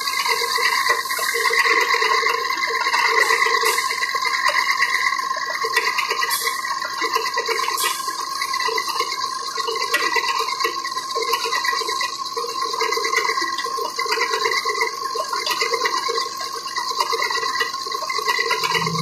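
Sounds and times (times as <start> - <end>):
low hum: 18.4 - 19.0.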